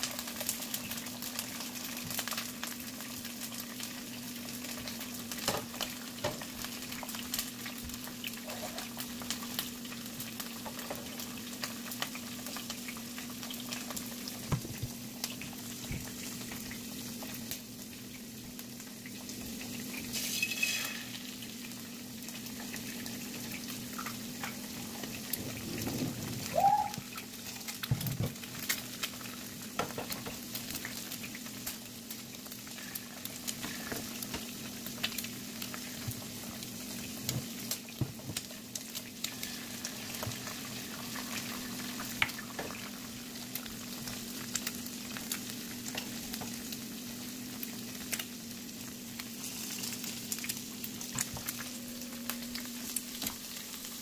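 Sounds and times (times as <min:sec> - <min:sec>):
eggs sizzling in oil: 0:00.0 - 0:54.0.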